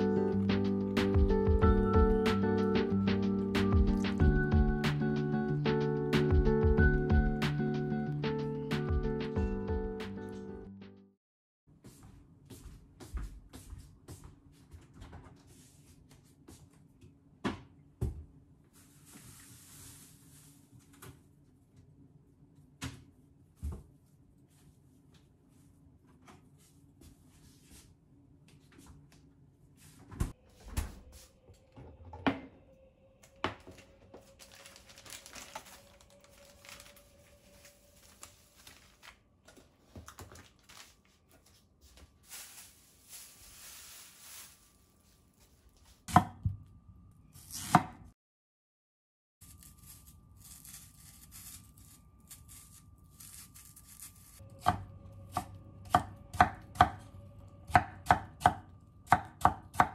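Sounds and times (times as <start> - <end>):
packaging rustling: 33.6 - 45.6
knife chopping on wooden board: 46.1 - 46.6.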